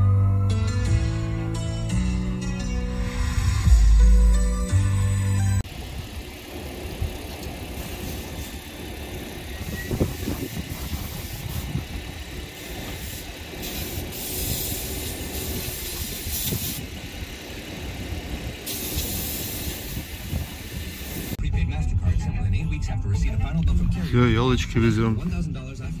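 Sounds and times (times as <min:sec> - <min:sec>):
low rumble of street traffic: 0:05.4 - 0:26.0
hissing water spray: 0:07.5 - 0:21.4.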